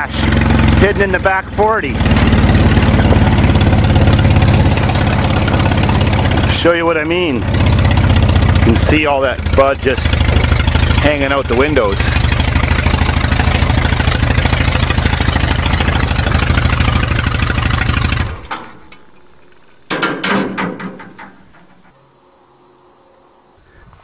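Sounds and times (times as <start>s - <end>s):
small engine idling: 0.0s - 19.9s
clicks and knocks: 18.4s - 22.0s.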